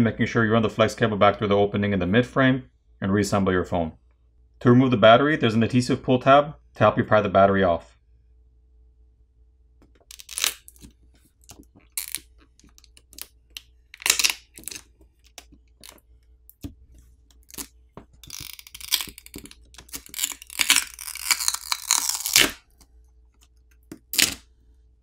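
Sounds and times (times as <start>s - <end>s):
adhesive crackling and ticking: 9.8s - 24.4s
adhesive tearing: 9.9s - 24.5s.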